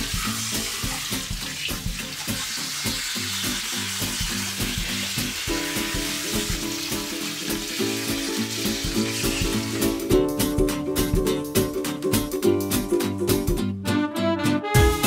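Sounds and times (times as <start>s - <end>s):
water hissing from hose nozzle: 0.0s - 10.0s
plucked background music: 0.0s - 15.0s.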